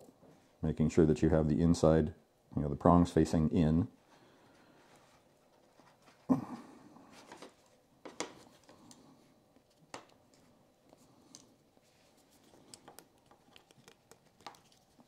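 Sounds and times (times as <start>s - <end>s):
wire clicks and rustles: 7.1s - 15.0s.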